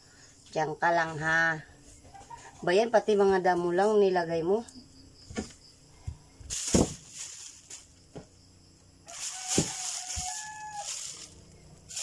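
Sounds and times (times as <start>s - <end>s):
soft thumps: 5.2s - 7.4s
plastic bag crinkling: 6.5s - 8.0s, 9.1s - 12.0s.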